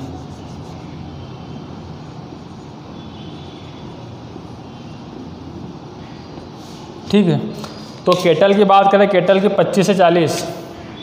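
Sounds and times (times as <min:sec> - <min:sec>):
marker squeaking on whiteboard: 0:00.0 - 0:05.0.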